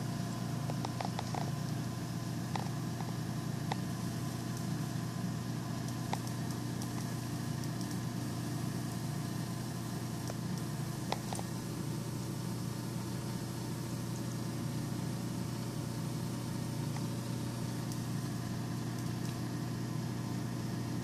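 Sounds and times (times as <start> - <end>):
low electrical hum: 0.0 - 21.0
sharp electrical ticks: 0.6 - 1.8, 2.4 - 5.0, 5.7 - 11.8, 16.5 - 19.6.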